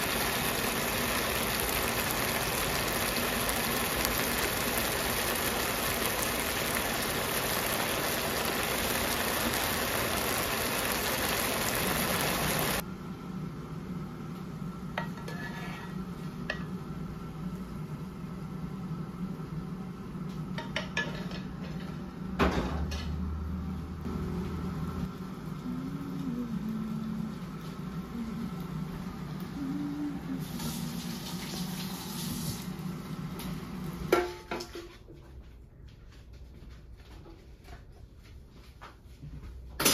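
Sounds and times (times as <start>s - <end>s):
sizzling hiss in a pan: 0.0s - 12.8s, 14.9s - 21.4s, 24.4s - 34.9s
steady low hum: 21.4s - 30.5s.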